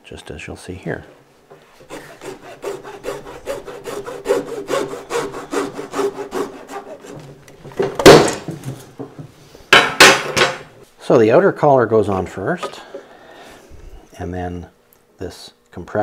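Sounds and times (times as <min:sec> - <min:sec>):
hacksaw cutting plastic pipe: 0:01.8 - 0:08.4.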